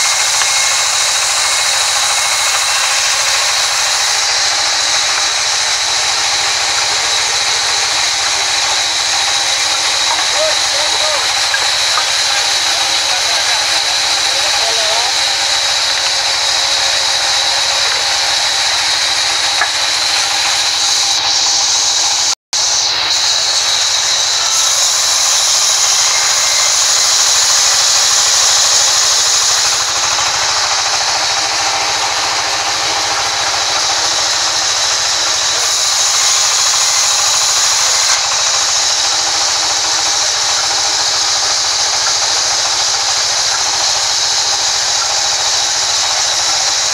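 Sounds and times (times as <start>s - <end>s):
band saw ripping wood: 0.0s - 21.9s.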